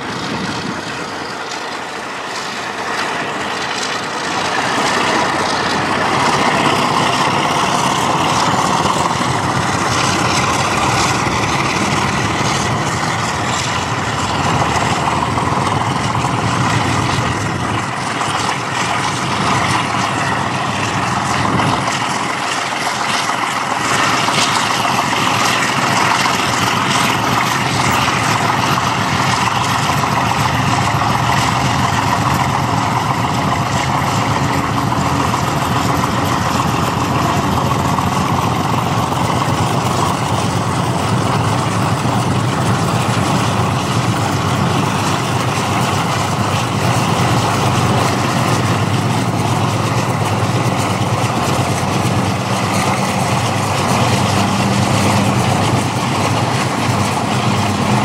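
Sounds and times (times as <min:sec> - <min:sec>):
car road and wind noise: 0:00.0 - 0:01.4, 0:35.8 - 0:58.0
diesel locomotive drone: 0:00.0 - 0:58.0.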